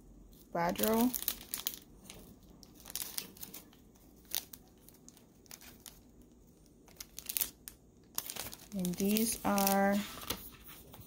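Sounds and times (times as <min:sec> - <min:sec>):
tissue paper rustling: 0:06.9 - 0:07.6, 0:08.2 - 0:11.0.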